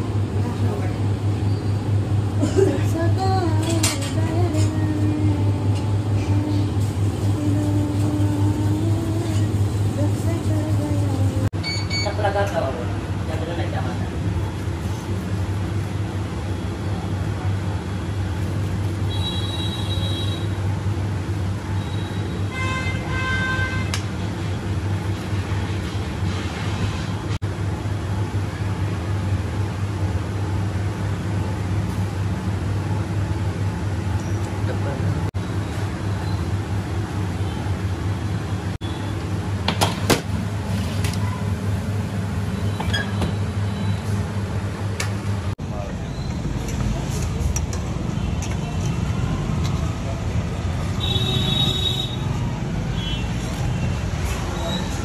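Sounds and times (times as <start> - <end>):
low engine rumble: 0.0 - 11.5
low mechanical hum: 0.0 - 55.0.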